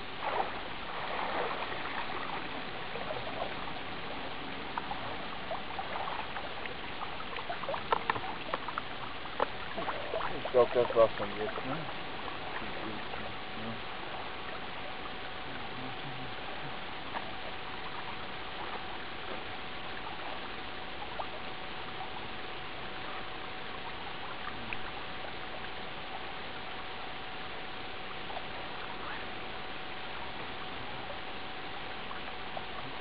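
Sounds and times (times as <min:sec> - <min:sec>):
faint hum: 0:00.0 - 0:33.0
steady hiss: 0:00.0 - 0:33.0
faint ticks: 0:04.7 - 0:10.3, 0:14.5 - 0:27.6.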